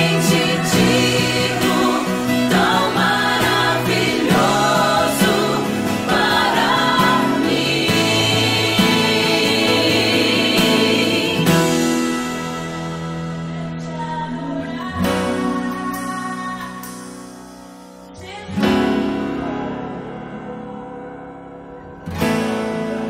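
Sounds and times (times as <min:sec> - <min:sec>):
choir-like voices singing: 0:00.0 - 0:15.7.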